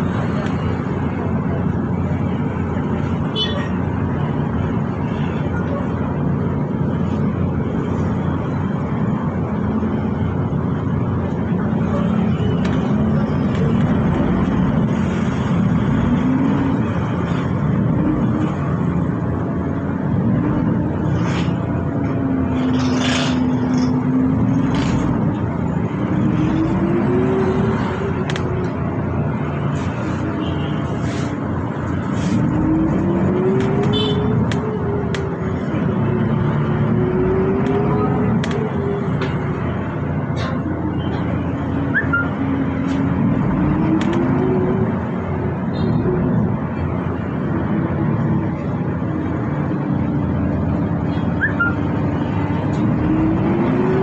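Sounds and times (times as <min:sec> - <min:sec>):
bus engine and road rumble: 0:00.0 - 0:54.0
sharp clicks: 0:37.6 - 0:38.7, 0:43.9 - 0:44.4.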